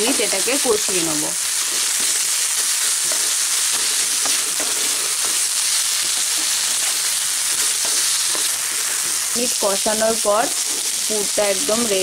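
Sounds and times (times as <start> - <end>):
food sizzling in a frying pan: 0.0 - 12.0
wooden spatula scraping a pan: 1.6 - 12.0.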